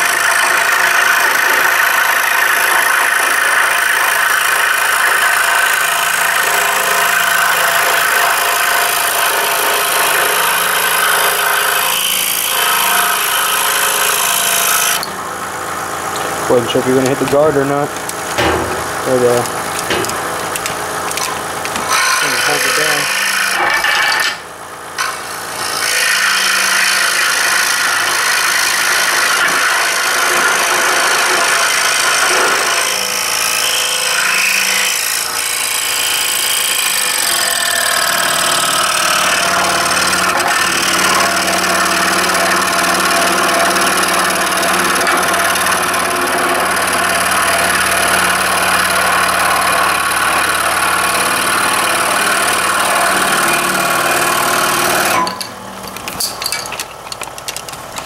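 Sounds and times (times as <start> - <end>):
scroll saw cutting wood: 0.0 - 24.4, 25.0 - 56.2.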